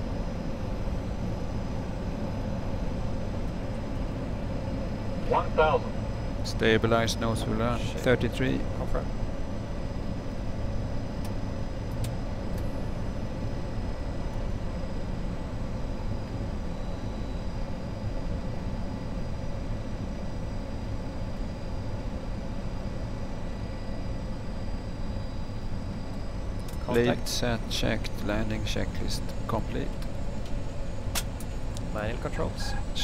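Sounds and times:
jet cabin low rumble: 0.0s - 8.0s
faint steady whine: 0.0s - 33.0s.

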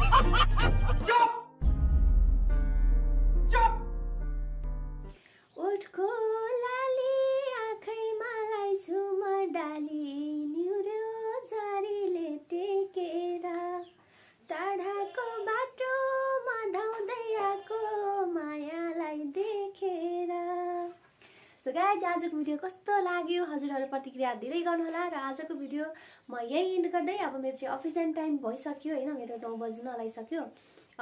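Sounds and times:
woman singing unaccompanied: 5.5s - 21.0s, 21.7s - 30.4s.

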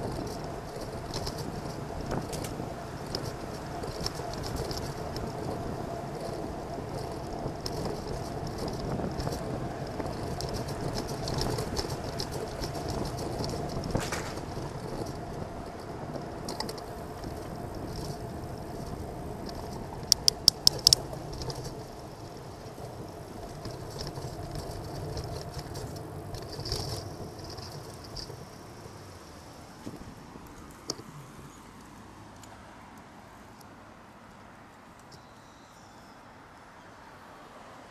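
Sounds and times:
road traffic noise: 0.0s - 37.9s
sharp clicks: 19.5s - 21.0s.

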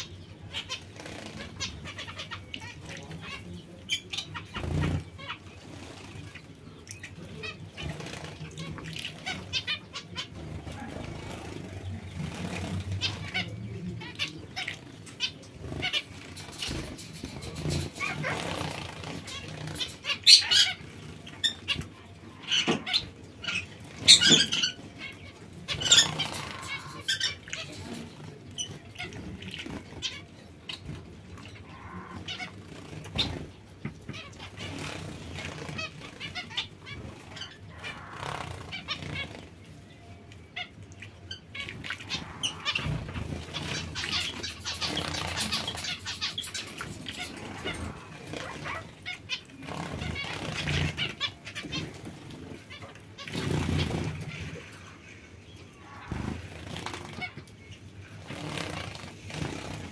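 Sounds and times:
finches chirping: 6.2s - 33.5s, 34.1s - 52.0s.

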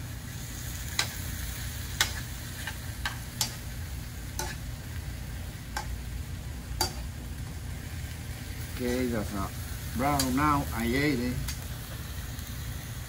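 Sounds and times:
steak sizzling in a skillet: 0.0s - 13.0s
metal tongs clicking on pan: 0.9s - 1.2s, 1.9s - 3.6s, 4.4s - 4.6s, 5.7s - 6.0s, 6.8s - 7.0s, 10.1s - 10.4s.

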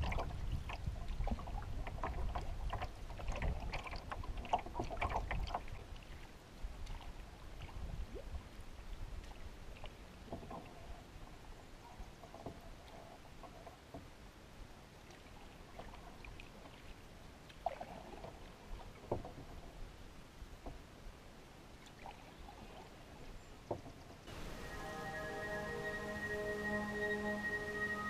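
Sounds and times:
water splashing against canoe hull: 0.0s - 8.2s, 15.0s - 20.9s
wind rumble on microphone: 0.0s - 9.8s.

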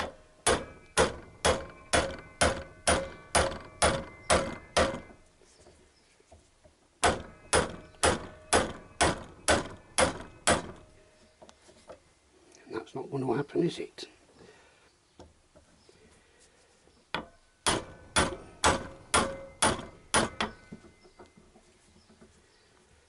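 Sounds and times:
hammer blows on metal: 0.0s - 5.2s.

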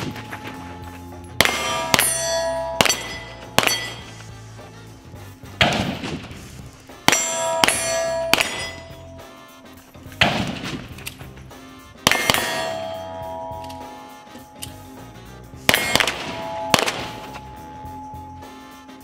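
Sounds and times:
ringing tone: 0.0s - 4.2s, 7.1s - 9.6s, 12.4s - 19.0s
pistol shots: 1.4s - 4.3s, 5.6s - 6.4s, 7.0s - 9.4s, 10.0s - 11.2s, 12.0s - 14.8s, 15.6s - 18.0s.

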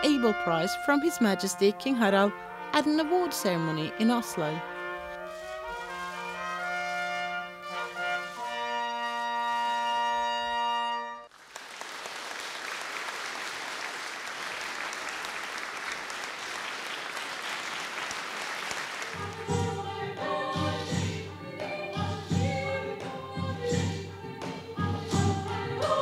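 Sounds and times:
brass fanfare: 0.0s - 11.3s
audience applause: 11.3s - 19.4s.

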